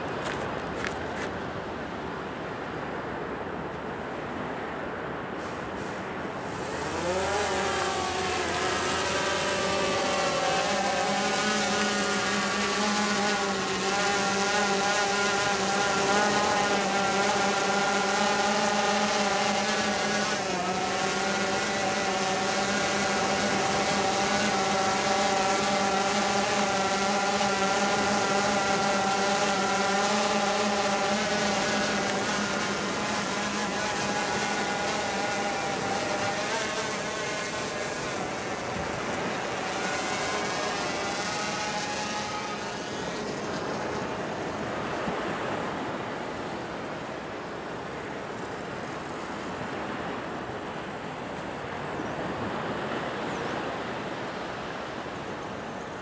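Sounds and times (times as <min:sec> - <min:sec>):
drone propellers whining: 0:06.3 - 0:45.6.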